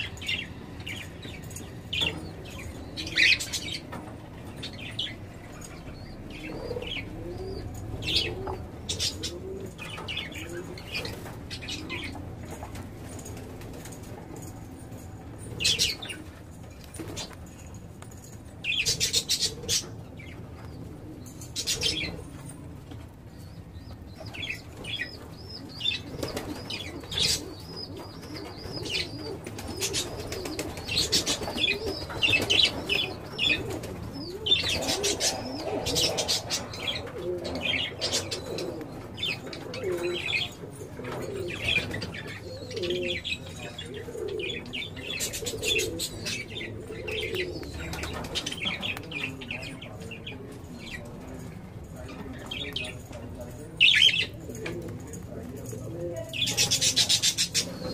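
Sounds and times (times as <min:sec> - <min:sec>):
lovebirds chirping: 0:00.0 - 0:54.6, 0:56.3 - 0:57.9.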